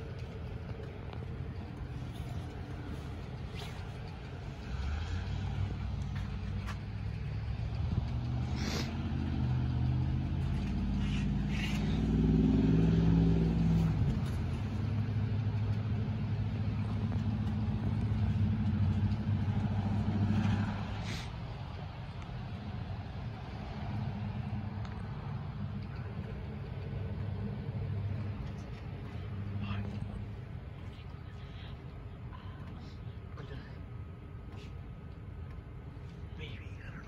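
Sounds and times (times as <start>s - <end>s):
truck engine driving past: 0.0s - 30.6s.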